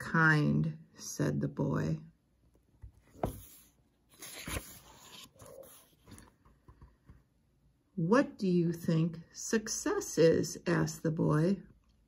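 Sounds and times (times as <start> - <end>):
book page turning: 2.8 - 6.6.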